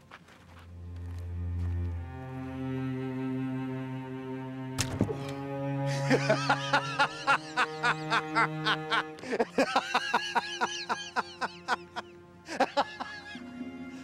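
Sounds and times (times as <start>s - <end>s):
low cello and double bass score: 0.6s - 14.0s
laughter in rapid bursts: 5.9s - 13.4s.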